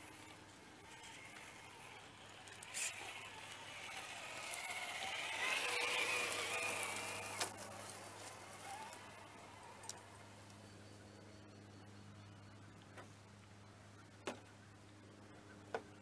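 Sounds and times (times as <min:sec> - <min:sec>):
rc car electric motor whine: 0:00.0 - 0:10.0.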